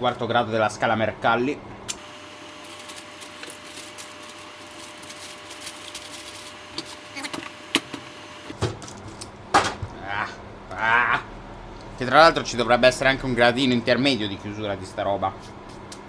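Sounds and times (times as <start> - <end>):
baking paper rustling: 2.4 - 7.6.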